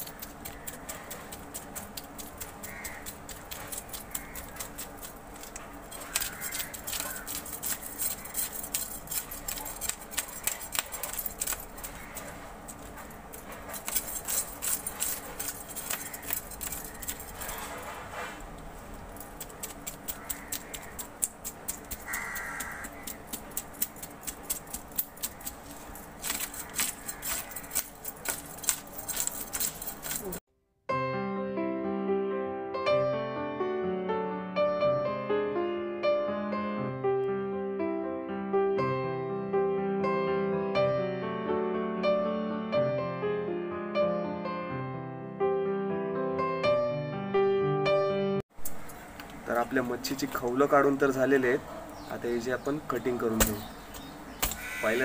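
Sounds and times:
knife scraping fish scales: 0.0 - 30.4.

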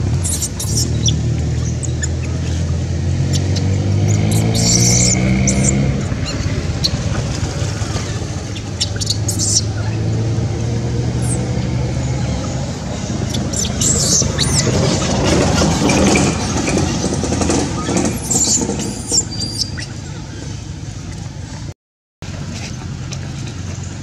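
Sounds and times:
low outdoor rumble: 0.0 - 24.0
baby monkey squeaking: 0.2 - 7.2, 8.1 - 10.1, 11.2 - 16.8, 17.8 - 20.0.

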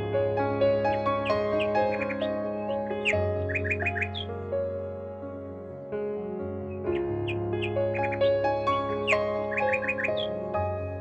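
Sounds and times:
soft background music: 0.0 - 11.0
bird chirps: 0.9 - 4.4, 6.7 - 10.7.

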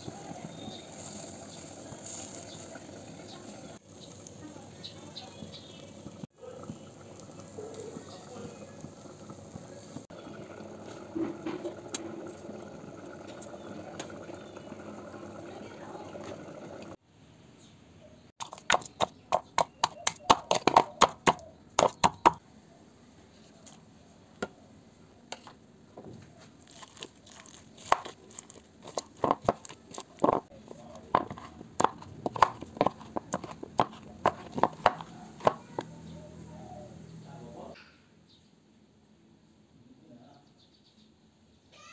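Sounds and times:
squelches of mashing tomatoes: 18.4 - 22.4, 26.2 - 37.0
stone pounding on a plate: 31.1 - 35.8.

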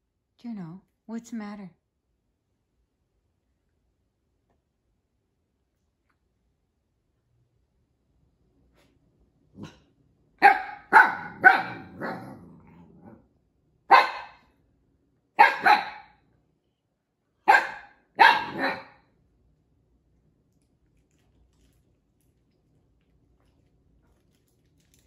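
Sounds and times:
puppy growling: 9.5 - 9.9, 11.2 - 13.3
puppy barking: 10.4 - 12.4, 13.9 - 14.5, 15.4 - 16.2, 17.4 - 19.0.

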